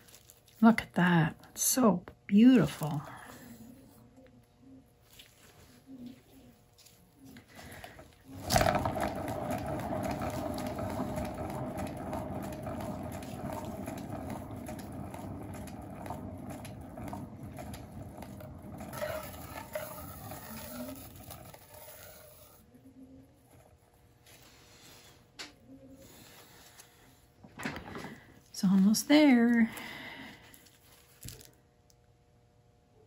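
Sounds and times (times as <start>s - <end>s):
spinning turntable whirring hum: 5.6s - 24.6s.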